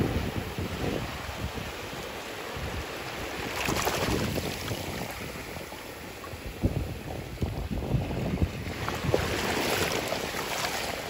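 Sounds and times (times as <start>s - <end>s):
wind on microphone: 0.0s - 11.0s
surf washing over shells: 1.9s - 7.4s, 8.2s - 11.0s.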